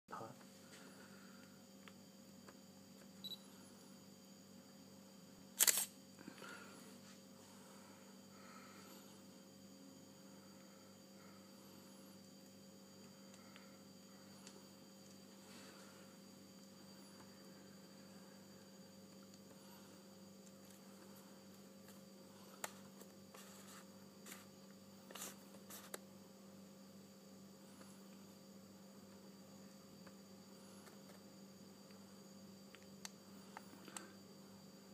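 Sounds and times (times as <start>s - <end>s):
faint electrical hum: 0.1s - 34.9s.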